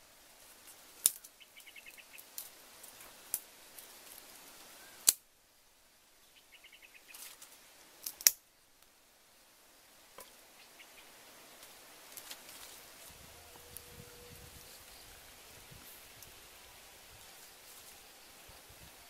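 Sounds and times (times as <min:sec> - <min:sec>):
sticks snapping: 0:01.0 - 0:01.3, 0:05.0 - 0:05.2, 0:07.1 - 0:08.4
bird twittering: 0:01.4 - 0:02.2, 0:06.4 - 0:07.2.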